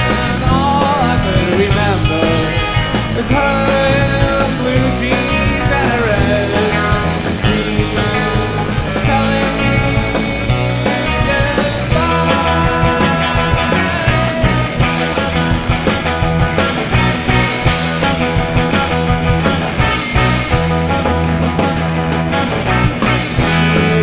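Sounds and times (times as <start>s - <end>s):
rock band playing live: 0.0s - 24.0s
steady drum beat: 0.0s - 24.0s.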